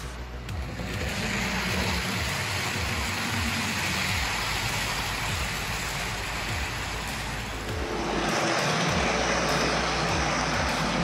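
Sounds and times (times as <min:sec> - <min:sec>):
model train wheels rolling: 0:00.6 - 0:07.7.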